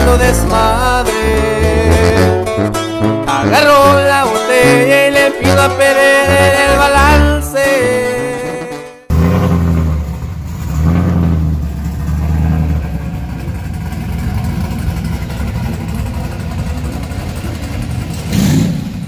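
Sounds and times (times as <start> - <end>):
pickup truck engine revving: 9.1 - 19.0.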